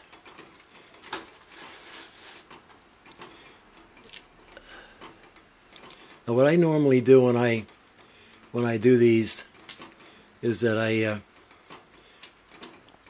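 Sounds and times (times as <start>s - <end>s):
soft handling rustles: 0.5s - 2.8s.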